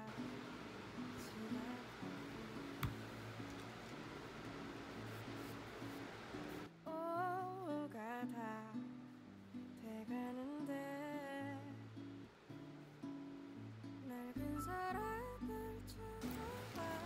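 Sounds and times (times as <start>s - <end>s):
person humming melody: 14.2s - 17.0s.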